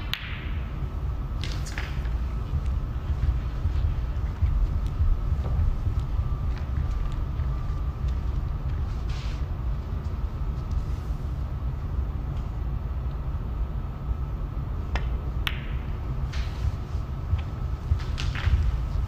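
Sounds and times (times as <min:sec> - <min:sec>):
snooker balls clicking: 0:00.0 - 0:00.7, 0:14.9 - 0:15.9
low background rumble: 0:00.0 - 0:19.0.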